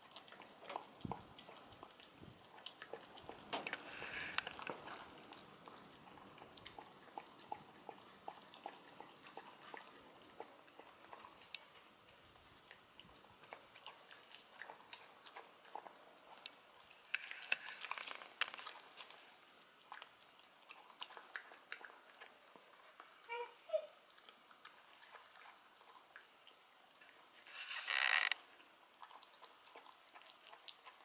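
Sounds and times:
puppy chewing and lapping: 0:00.0 - 0:31.0.

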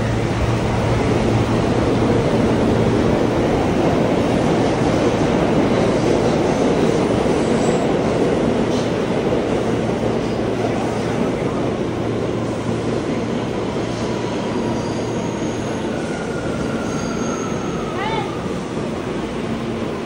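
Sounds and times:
subway train rumbling: 0:00.0 - 0:20.0
faint high squeal: 0:14.6 - 0:18.3.

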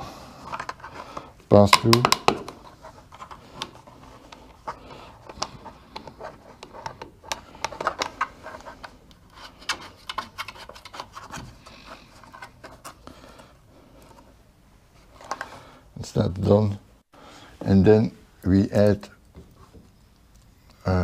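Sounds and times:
plastic rubbing and scraping: 0:00.0 - 0:15.6.

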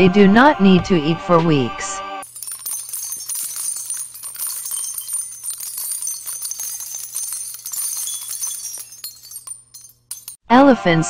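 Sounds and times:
small bells jingling: 0:02.2 - 0:10.4.

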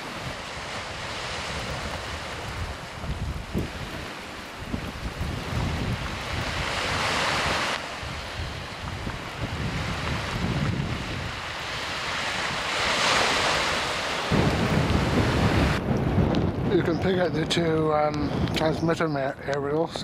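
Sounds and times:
waves breaking on rocky shore: 0:00.0 - 0:19.3
wind buffeting microphone: 0:00.0 - 0:20.0.

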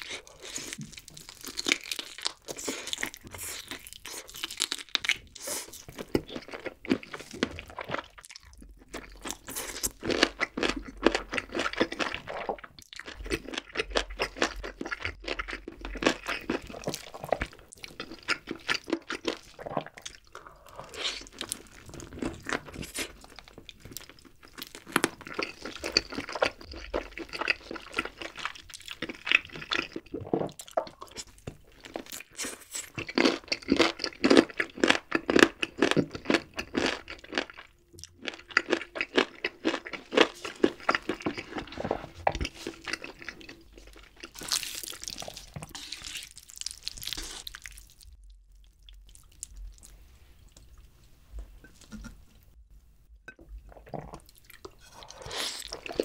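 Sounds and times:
crunchy wet chewing: 0:00.0 - 0:50.9.

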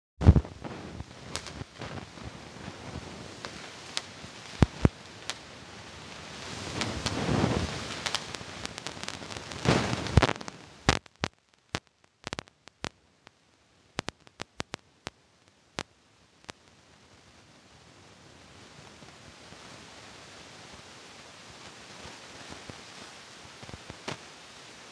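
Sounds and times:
muffled fireworks banging: 0:00.2 - 0:13.0, 0:14.0 - 0:15.2, 0:21.9 - 0:24.2.

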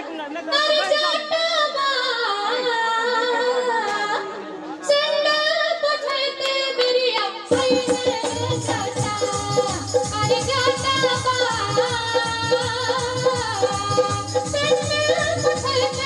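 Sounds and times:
band with drums: 0:07.5 - 0:16.0.

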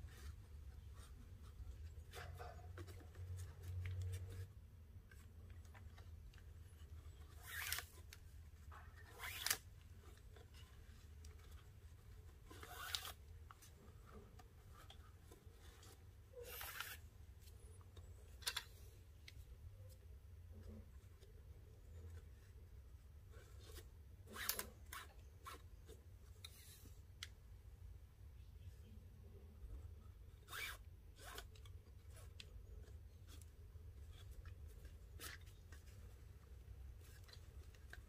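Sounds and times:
cord sliding and swishing: 0:08.8 - 0:17.6.

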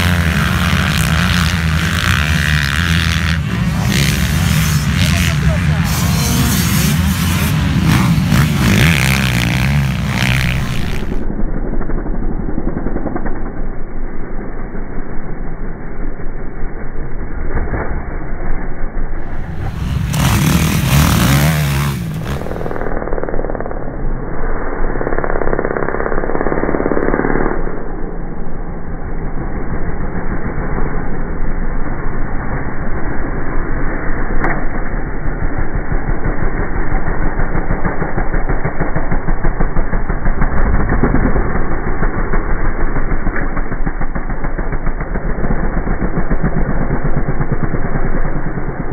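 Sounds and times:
muffled motocross engines revving: 0:00.0 - 0:13.6, 0:19.2 - 0:24.0, 0:35.3 - 0:48.9.

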